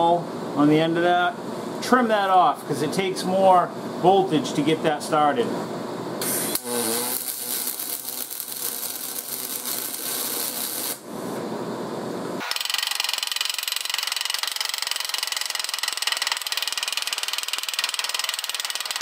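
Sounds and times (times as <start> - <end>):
handheld grinder chattering: 6.2 - 11.0, 12.4 - 19.0
welding arc crackling: 6.2 - 11.1, 12.4 - 19.0.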